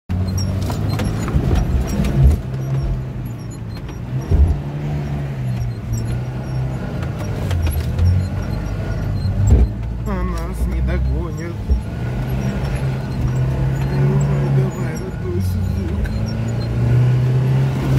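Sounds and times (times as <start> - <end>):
knocks and thumps of vehicle jolting: 0.1 - 4.7
suv engine in low gear: 0.1 - 17.9.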